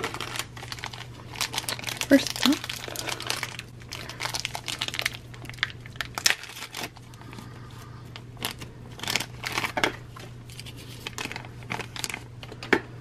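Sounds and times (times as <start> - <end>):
plastic bag crinkling: 0.0 - 12.6
faint steady hum: 0.0 - 13.0.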